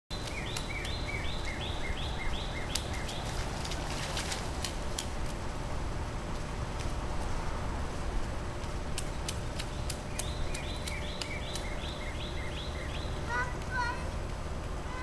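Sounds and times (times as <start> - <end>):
bird calling: 0.1 - 3.7, 9.6 - 13.9
feet splashing in puddle: 0.1 - 5.4, 8.5 - 12.5
low outdoor rumble: 0.1 - 15.0.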